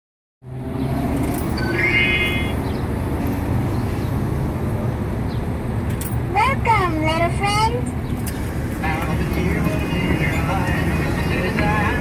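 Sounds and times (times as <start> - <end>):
street traffic rumble: 0.4 - 12.0
brief high-pitched tone: 1.5 - 2.6.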